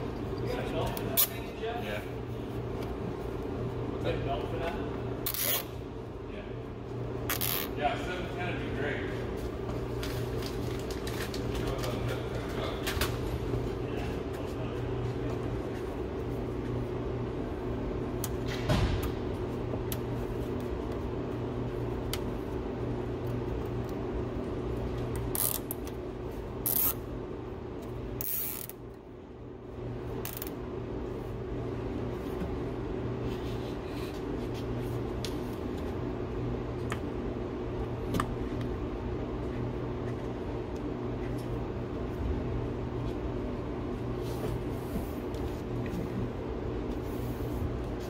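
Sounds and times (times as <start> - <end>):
steady low hum: 0.0 - 48.0
zip ties ratcheting: 5.2 - 5.7, 25.3 - 25.9, 26.6 - 27.0, 28.2 - 28.8.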